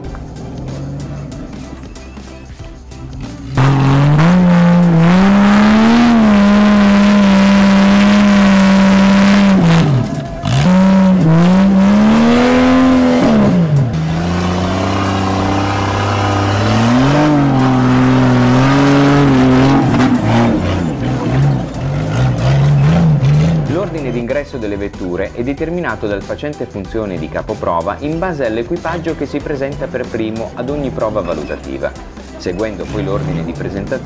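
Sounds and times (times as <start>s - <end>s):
engine revving hard: 3.4s - 24.2s, 32.3s - 34.0s.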